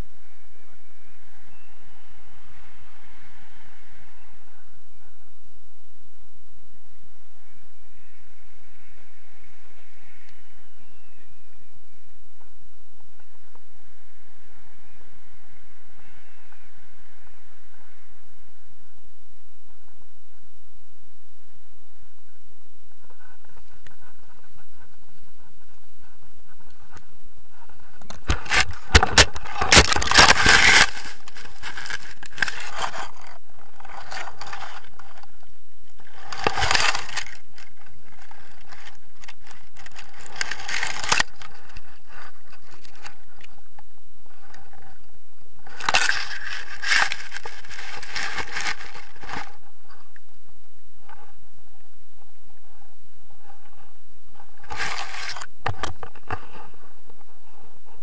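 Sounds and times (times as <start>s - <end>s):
harness scraping on grass: 23.1s - 35.2s.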